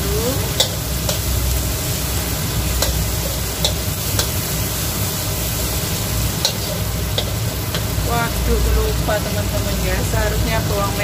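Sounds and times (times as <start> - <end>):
food sizzling in hot oil: 0.0 - 11.0
spatula clicking against pan: 0.6 - 1.2, 2.8 - 4.4.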